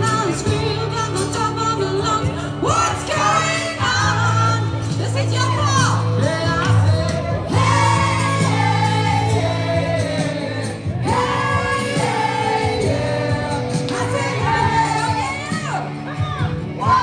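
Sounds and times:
acoustic guitar: 0.0 - 17.0
bass line: 0.0 - 17.0
woman singing into a microphone: 0.0 - 17.0.

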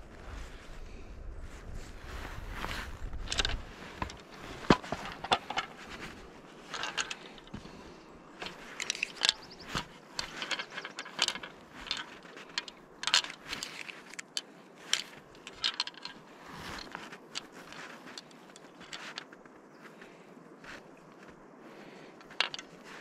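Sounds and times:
fishing tackle clicking and rattling: 3.2 - 19.5, 22.2 - 23.0.

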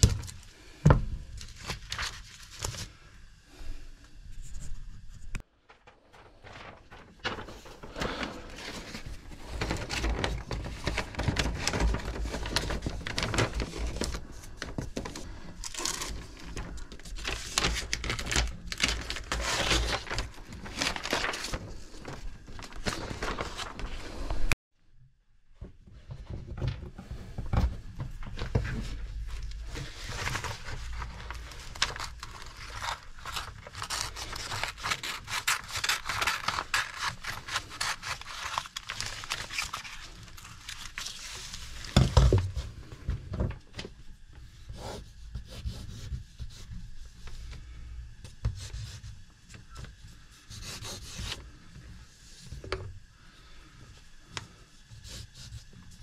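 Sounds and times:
hands scraping and rustling paper: 0.0 - 3.1, 4.4 - 24.6, 27.0 - 43.1.

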